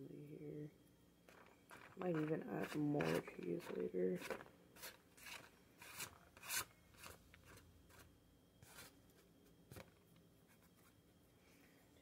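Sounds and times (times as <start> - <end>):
plastic bag crinkling: 1.3 - 6.0.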